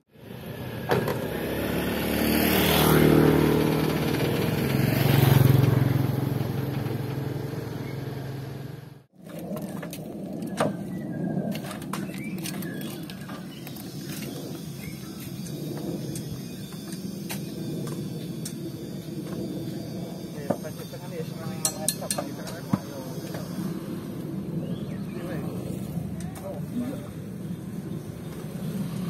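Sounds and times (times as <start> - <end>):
diesel truck engine revving: 0.3 - 9.1.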